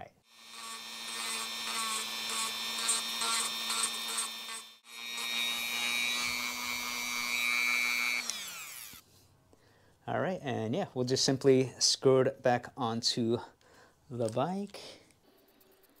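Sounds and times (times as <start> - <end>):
rotary tool whining: 0.3 - 9.0
rotary tool grinding plastic: 0.4 - 9.0.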